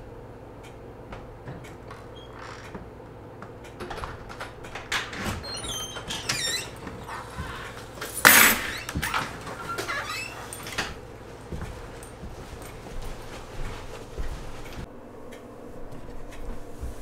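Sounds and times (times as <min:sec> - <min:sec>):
squeaky door hinges: 0:01.7 - 0:02.9, 0:03.6 - 0:11.0
door latch clicks: 0:03.6 - 0:06.9.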